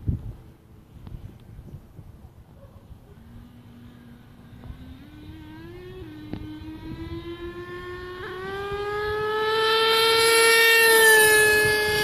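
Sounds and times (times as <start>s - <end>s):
nitro engine high-pitched whine: 2.8s - 12.0s.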